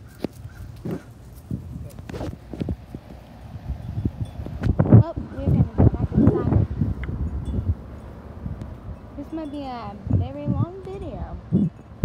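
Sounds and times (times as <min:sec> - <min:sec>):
footsteps on dry grass and leaves: 0:00.0 - 0:03.7.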